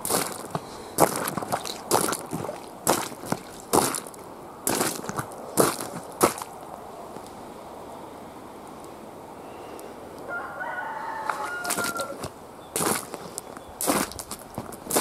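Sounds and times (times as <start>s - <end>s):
footsteps crunching on ice: 0.0s - 6.6s, 11.2s - 15.0s
rooster crowing: 10.3s - 12.3s.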